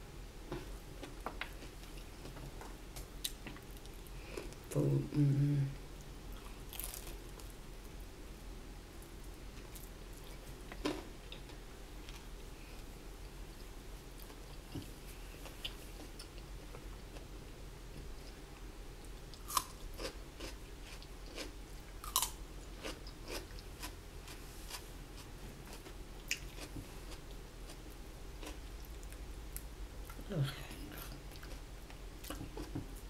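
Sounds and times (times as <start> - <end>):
person chewing crunchy food: 6.3 - 7.5, 19.3 - 29.2, 30.9 - 32.8.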